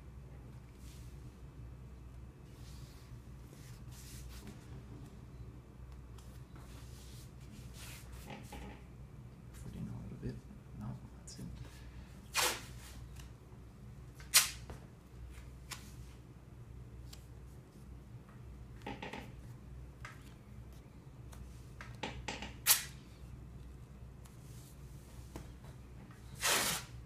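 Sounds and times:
steady low hum: 0.0 - 27.0
tape ripping: 12.3 - 12.7, 14.2 - 14.6, 22.6 - 23.0, 26.4 - 26.9.

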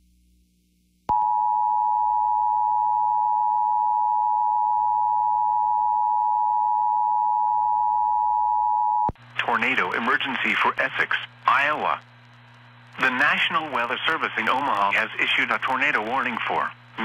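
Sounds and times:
dual-tone alarm signal: 1.1 - 9.1.

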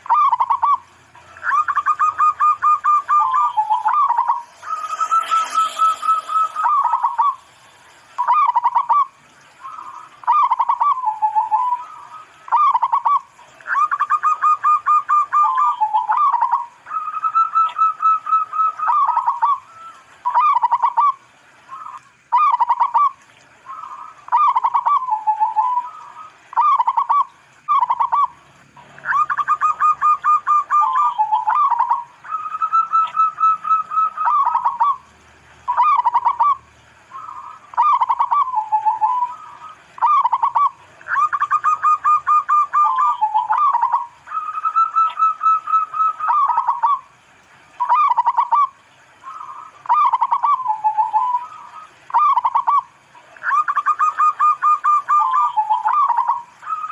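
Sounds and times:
dove cooing: 0.0 - 7.6, 8.2 - 28.3, 29.0 - 35.1, 35.7 - 47.2, 47.8 - 56.9.

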